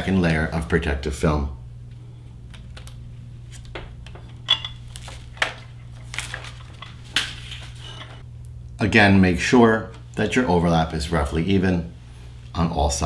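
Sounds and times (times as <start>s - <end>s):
plastic film crinkling: 4.8s - 7.9s.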